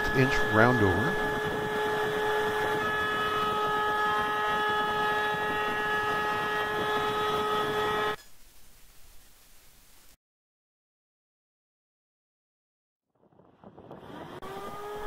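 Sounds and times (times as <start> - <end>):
router bit cutting wood: 0.0 - 8.2, 14.0 - 15.0
router whining: 0.0 - 8.2, 13.9 - 15.0.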